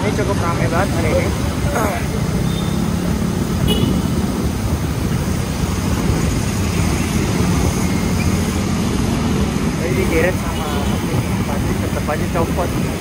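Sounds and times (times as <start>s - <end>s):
road traffic noise: 0.0s - 13.0s
wind rumble on microphone: 3.0s - 13.0s.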